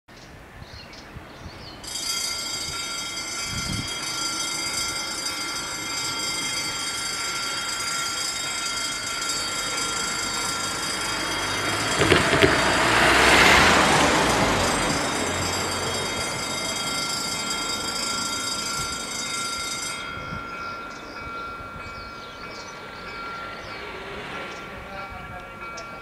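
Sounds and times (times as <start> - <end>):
level crossing warning bells: 1.8 - 26.0
car driving past: 9.8 - 17.8.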